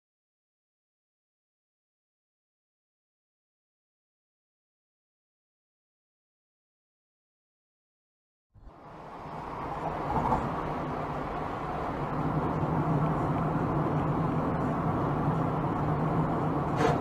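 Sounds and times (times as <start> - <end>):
car road noise from inside: 8.6 - 17.0.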